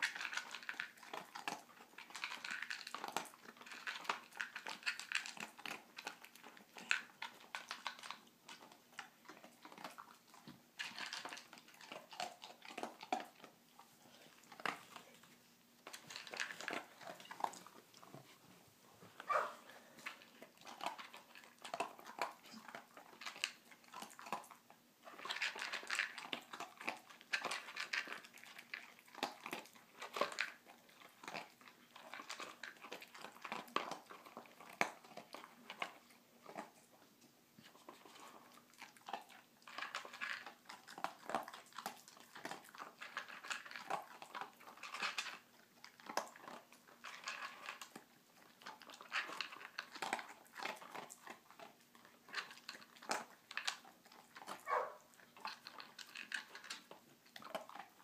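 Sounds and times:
dog crunching kibble: 0.0s - 58.0s
plastic puzzle feeder clicking and rattling: 39.7s - 40.6s.

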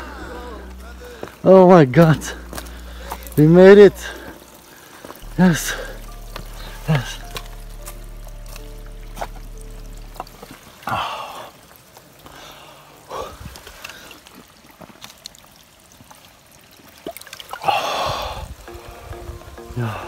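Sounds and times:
stream trickling: 0.0s - 20.0s
person gasping for breath: 17.6s - 18.5s.

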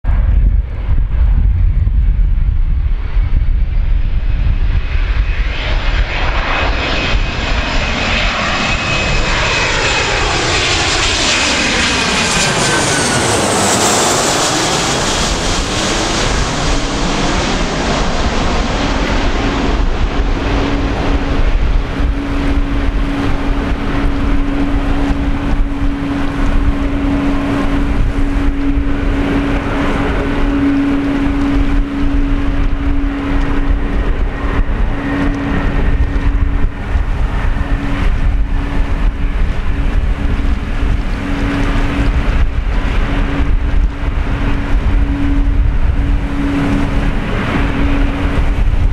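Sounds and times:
jet airliner passing overhead: 0.0s - 48.9s
steady low hum: 0.0s - 48.9s.

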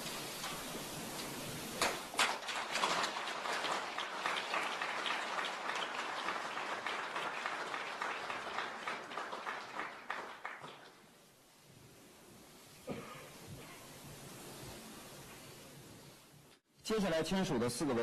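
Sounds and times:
audience applauding: 0.4s - 11.2s.

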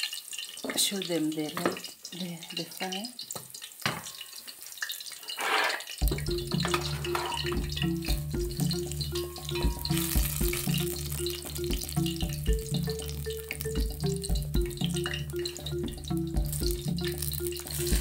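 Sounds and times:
vegetables sizzling in oil: 0.0s - 18.0s
music with steady beat: 6.0s - 18.0s
wooden spoon stirring and tapping: 6.0s - 18.0s.

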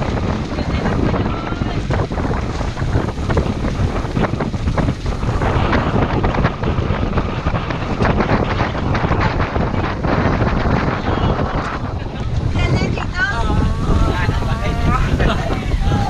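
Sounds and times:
wind buffeting microphone: 0.0s - 16.0s.

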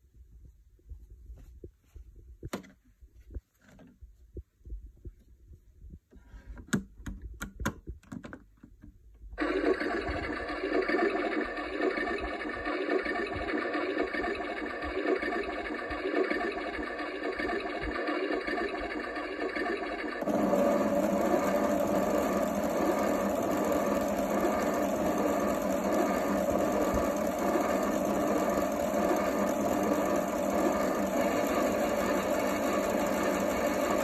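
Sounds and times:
light plastic clicks and knocks: 6.1s - 9.0s
electronic washing machine sound: 9.4s - 34.0s
small drum motor humming: 9.4s - 34.0s.

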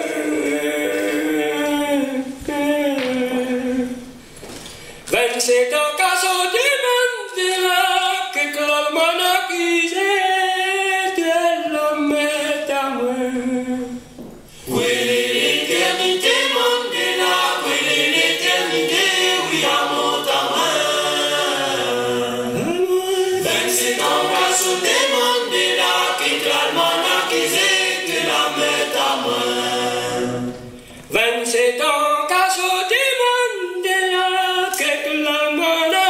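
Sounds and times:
choir singing a cappella: 0.0s - 4.2s, 12.0s - 31.7s.

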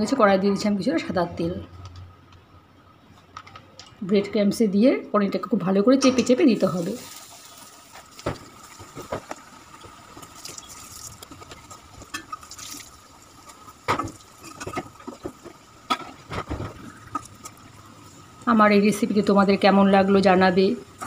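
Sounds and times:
deep-frying sizzle in oil: 6.6s - 19.2s.

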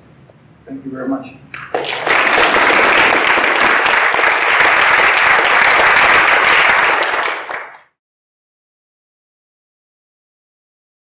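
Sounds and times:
audience applauding: 1.5s - 8.0s.

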